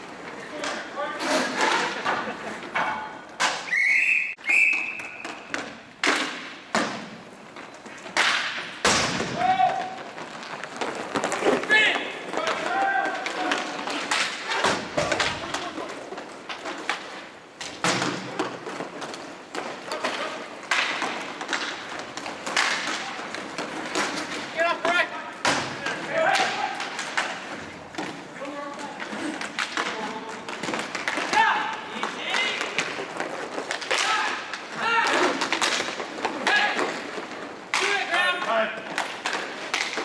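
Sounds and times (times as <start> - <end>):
hockey sticks and puck knocking: 0.0 - 40.0
referee's whistle blasts: 3.7 - 5.3.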